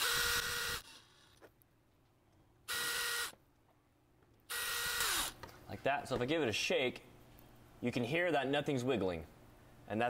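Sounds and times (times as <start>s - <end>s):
cordless drill motor whining: 0.0s - 1.4s, 2.7s - 3.4s, 4.5s - 5.4s.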